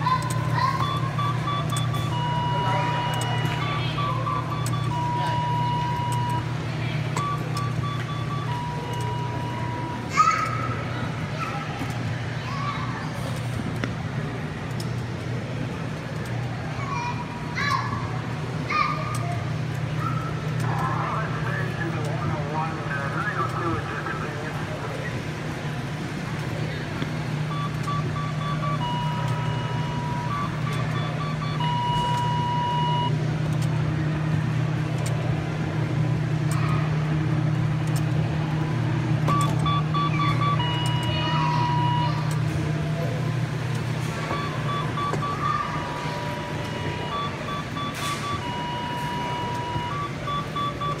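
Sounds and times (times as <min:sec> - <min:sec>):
kiddie ride low hum: 0:00.0 - 0:51.0
electronic beeps and tones: 0:00.3 - 0:10.1, 0:27.4 - 0:33.1, 0:39.3 - 0:42.4, 0:43.9 - 0:51.0.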